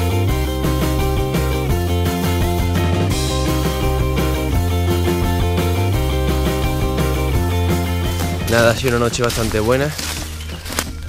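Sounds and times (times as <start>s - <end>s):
rock music with guitar and bass: 0.0s - 11.0s.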